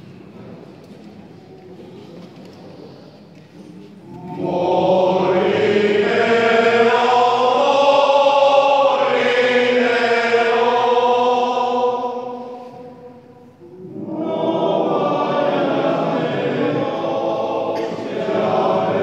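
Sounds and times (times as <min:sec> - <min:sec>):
male choir singing sustained notes: 0:04.0 - 0:19.0.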